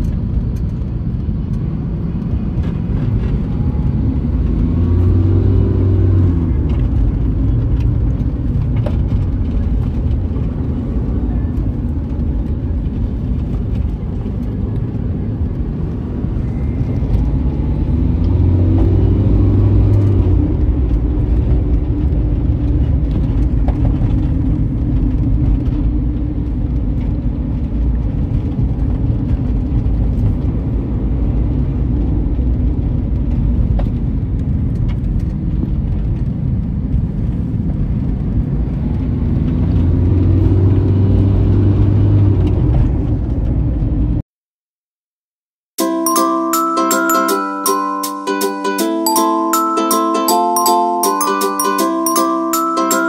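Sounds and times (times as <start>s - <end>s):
car engine rumble: 0.0s - 44.2s
engine revving: 3.2s - 7.6s, 16.4s - 22.6s, 39.0s - 42.7s.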